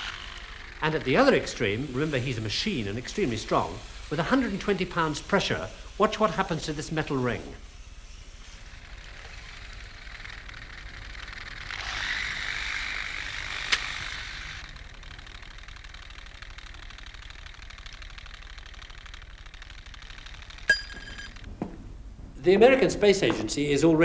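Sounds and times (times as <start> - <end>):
hiss of machinery: 0.0 - 9.2
low steady hum: 20.6 - 24.0.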